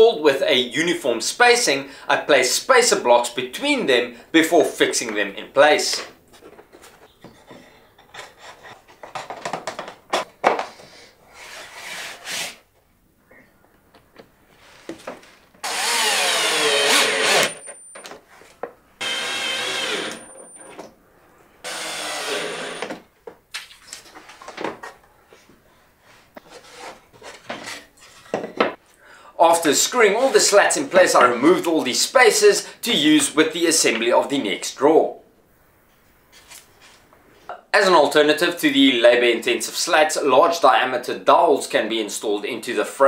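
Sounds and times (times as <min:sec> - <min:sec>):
cordless drill driving screws: 0:15.6 - 0:17.6, 0:19.0 - 0:20.4, 0:21.6 - 0:23.0.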